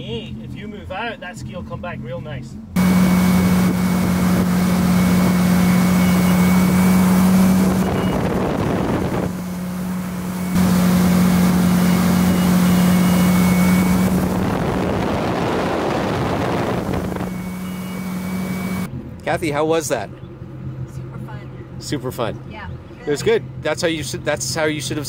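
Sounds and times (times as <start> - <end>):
boat engine running: 2.5 - 25.0
wind rushing: 6.5 - 11.5, 13.4 - 17.6.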